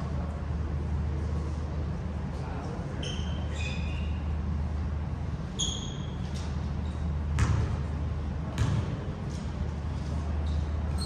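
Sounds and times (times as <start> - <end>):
steady low hum: 0.0 - 11.0
shoes squeaking on gym floor: 3.0 - 4.3, 5.6 - 7.1
basketball bouncing: 7.3 - 7.9, 8.5 - 9.1.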